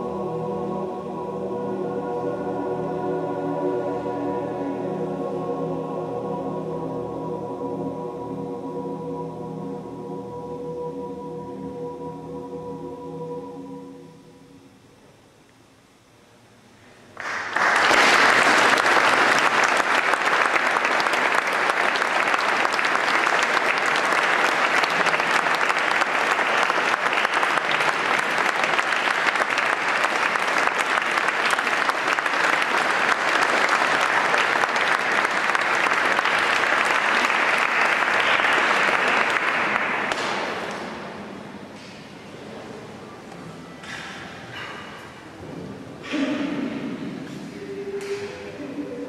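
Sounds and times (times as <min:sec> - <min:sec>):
audience applauding: 0:17.2 - 0:41.0.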